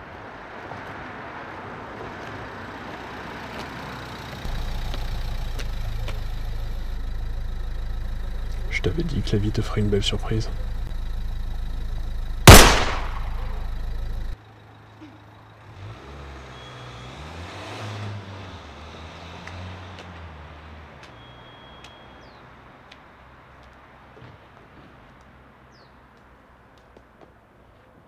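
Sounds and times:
car engine driving off: 0:02.4 - 0:21.5
low steady hum: 0:04.5 - 0:14.4
pistol shot: 0:12.5 - 0:13.7.

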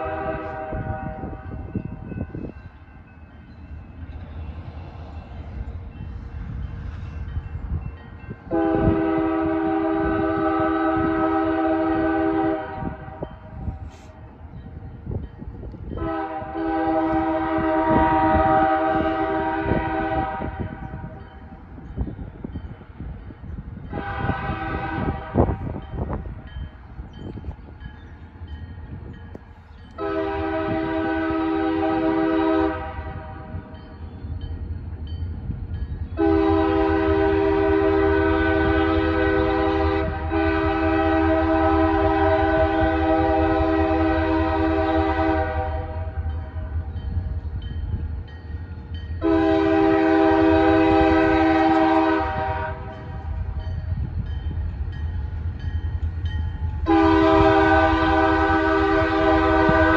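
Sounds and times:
distant locomotive air horn: 0:00.0 - 0:02.1, 0:08.5 - 0:14.2, 0:15.9 - 0:21.2, 0:23.9 - 0:26.2, 0:30.0 - 0:33.7, 0:36.2 - 0:46.8, 0:49.2 - 0:53.5, 0:56.8 - 0:59.9.

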